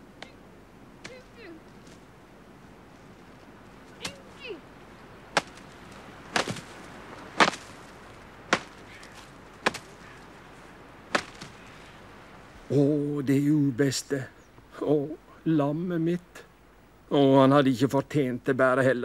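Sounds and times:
stick striking sharp cracks: 4.0s - 4.3s, 5.3s - 10.2s, 11.1s - 11.6s.

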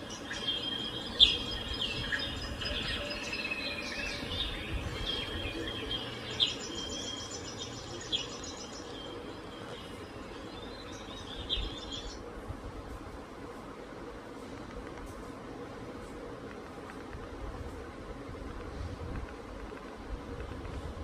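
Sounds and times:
birdsong through tv speakers: 0.0s - 12.4s.

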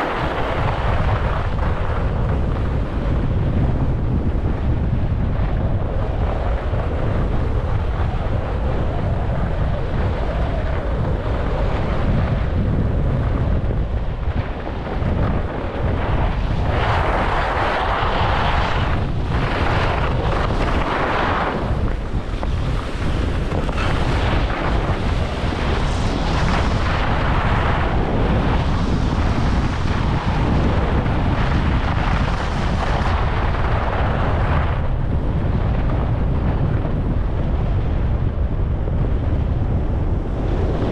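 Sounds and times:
wind rushing over microphone: 0.0s - 40.9s
skis sliding on snow: 14.3s - 34.7s.

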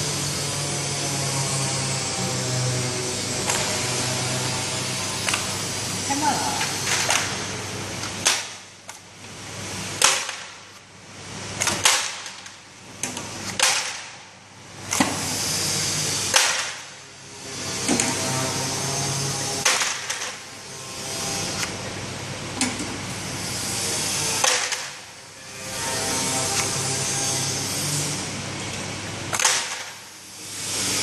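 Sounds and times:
conveyor motor hum: 0.0s - 13.5s.

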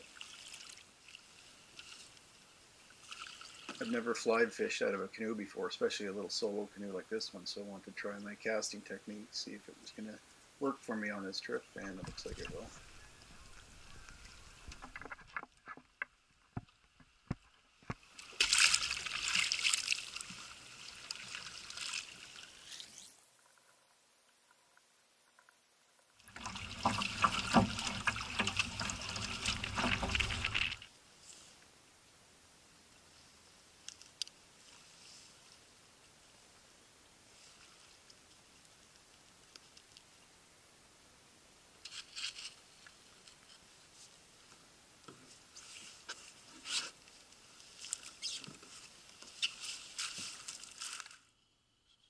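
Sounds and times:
lake water lapping against canoe hull: 11.9s - 22.5s, 26.2s - 30.9s
footsteps crunching on dry reeds: 47.7s - 51.2s.

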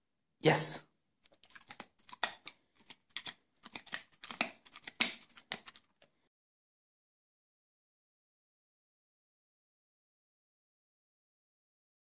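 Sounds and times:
dog chewing crunchy treat: 1.3s - 6.1s.

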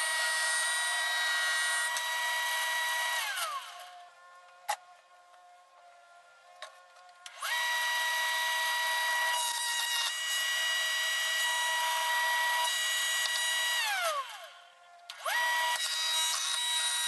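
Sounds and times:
board cut on jointer cutterhead: 0.0s - 4.0s, 7.3s - 14.4s, 15.2s - 17.0s
jointer motor whining: 0.0s - 4.1s, 7.2s - 17.0s.

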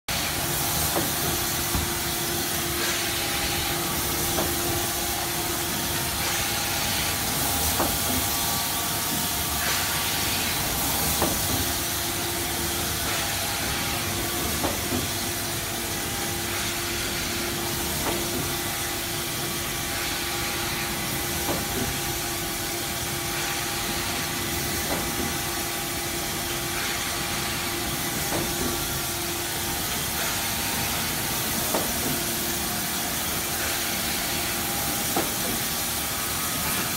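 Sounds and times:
printing machine humming: 0.1s - 36.9s.

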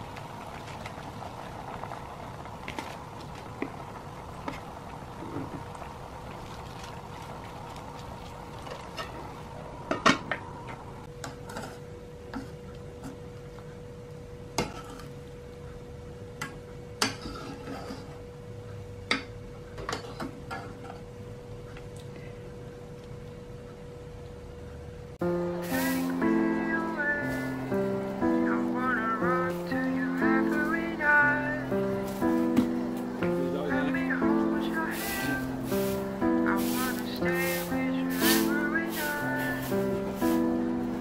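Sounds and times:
faint steady hum: 0.0s - 41.0s.

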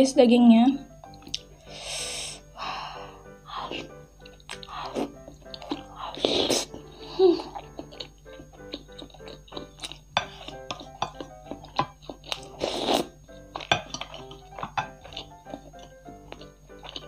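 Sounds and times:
background music: 0.0s - 17.0s
chewing: 1.1s - 1.5s, 3.5s - 17.0s
cutlery scraping a ceramic plate: 10.2s - 11.2s.

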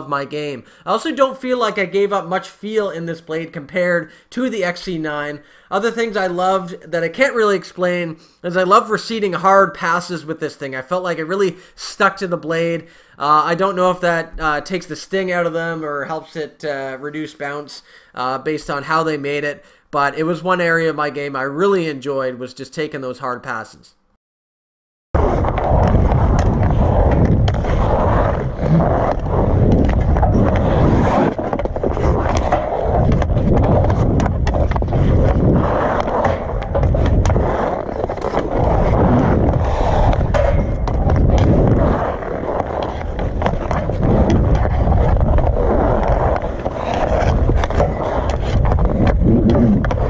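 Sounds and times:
skates scraping on ice: 25.2s - 50.0s
hockey stick striking pucks: 25.4s - 50.0s.

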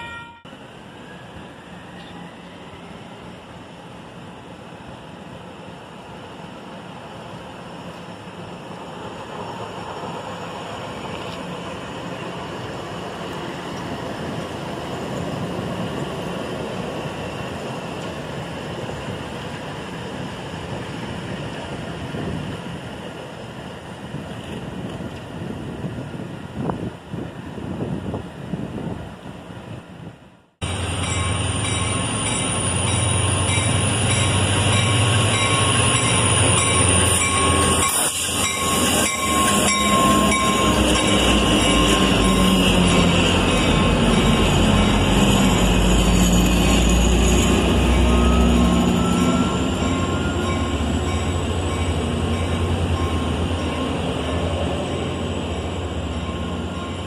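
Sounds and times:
steel wheels rumbling on rails: 30.6s - 57.0s
high squeal falling in pitch: 44.9s - 51.4s.

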